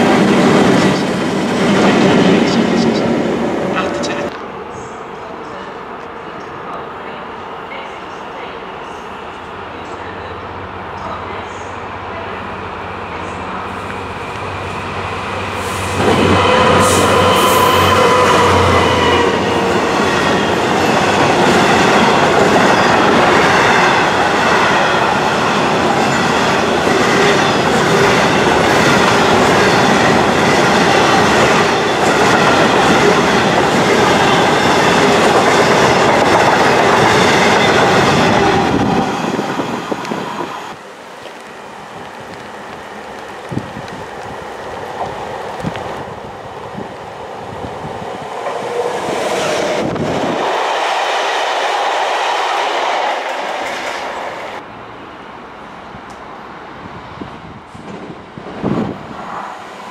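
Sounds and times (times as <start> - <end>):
diesel locomotive engine passing: 0.0 - 59.9
train wheels rumbling: 10.0 - 54.7.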